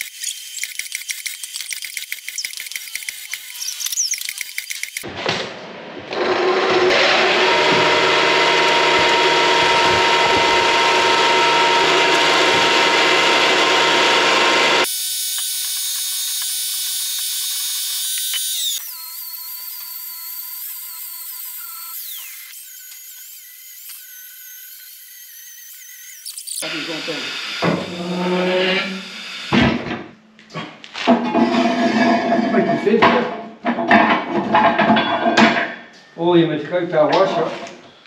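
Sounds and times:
angle grinder grinding steel: 0:00.0 - 0:05.1, 0:06.2 - 0:29.6
grinder disc winding down whine: 0:06.9 - 0:29.1.

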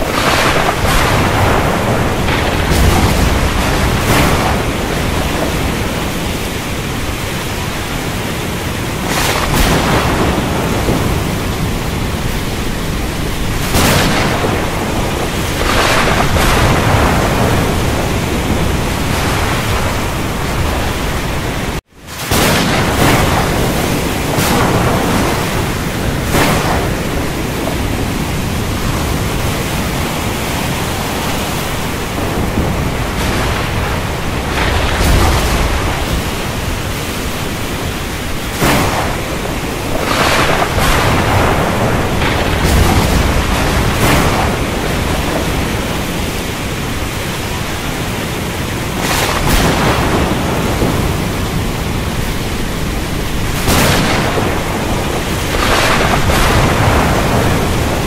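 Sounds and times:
heavy rain: 0:00.0 - 0:58.0
thunder rumbling: 0:00.0 - 0:58.0.

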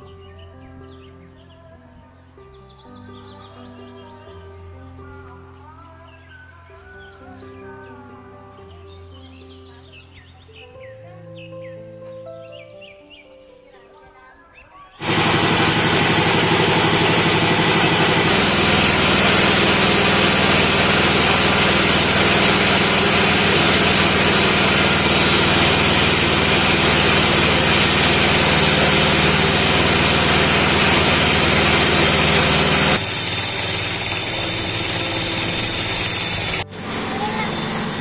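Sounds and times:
small motor running: 0:15.0 - 0:38.0.

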